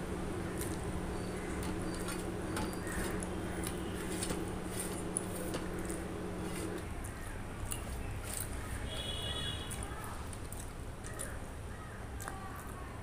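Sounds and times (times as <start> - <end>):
steady low hum: 0.0 - 12.2
fingers squishing food: 0.4 - 12.9
wet clicks and smacks: 7.0 - 8.6, 9.7 - 11.4.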